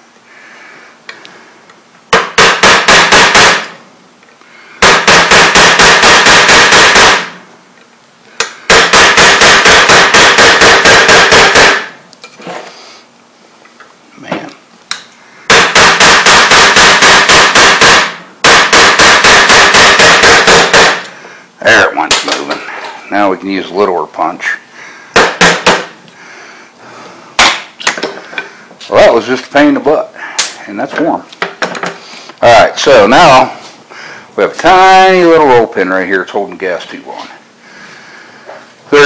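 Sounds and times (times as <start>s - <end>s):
hammer striking steel punch: 2.1s - 3.8s, 4.8s - 7.4s, 8.4s - 12.0s, 15.5s - 21.1s, 25.2s - 25.9s.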